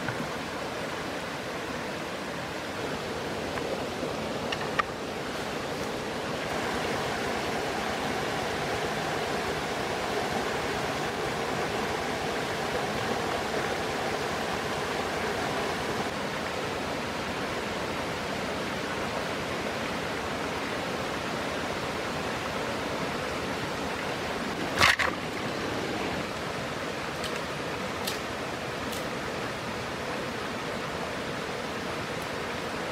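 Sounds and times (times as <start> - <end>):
stream water flowing: 0.0 - 32.9
dry bamboo sticks snapping: 28.0 - 28.3.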